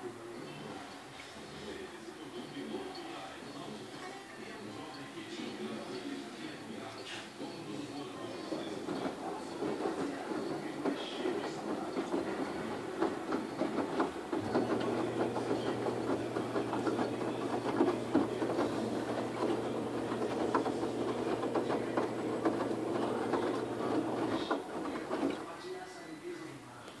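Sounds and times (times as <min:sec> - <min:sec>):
washing machine motor hum: 0:05.6 - 0:25.6
washing machine tumbling clothes: 0:07.4 - 0:25.6
laundry knocking against drum: 0:08.4 - 0:25.5.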